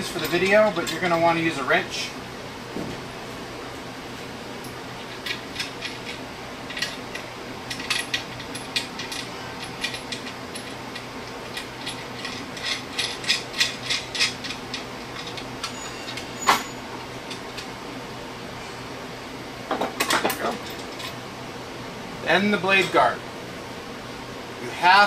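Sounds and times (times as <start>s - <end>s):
metal nuts clicking on bolts: 5.2s - 16.3s.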